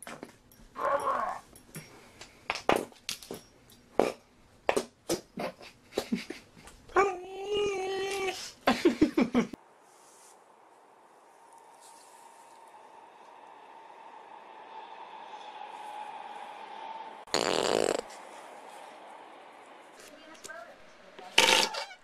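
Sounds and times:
dog whining: 0.8 - 1.5.

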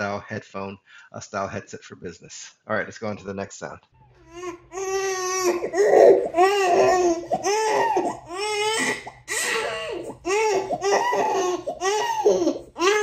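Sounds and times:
baby crying: 4.2 - 13.0.

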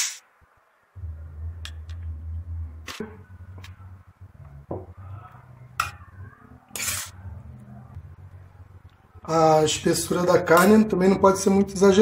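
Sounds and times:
steady low hum: 0.9 - 10.3.

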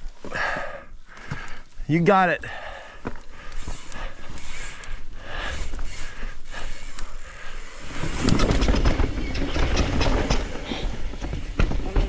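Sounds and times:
bike tyres crunching over dirt: 0.0 - 12.0
bike frame rattling: 3.3 - 12.0.

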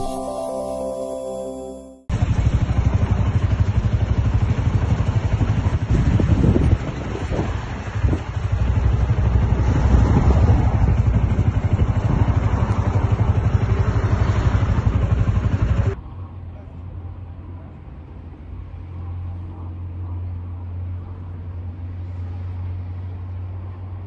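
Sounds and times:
vehicle engine rumbling: 2.1 - 24.0.

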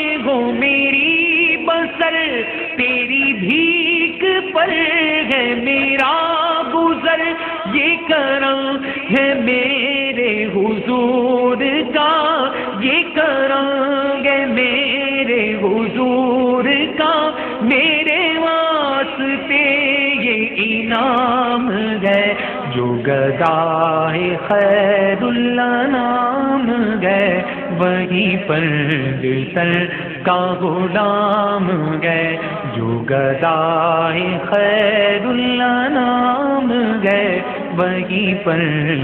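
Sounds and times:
man singing melismatic chant: 0.0 - 39.0.

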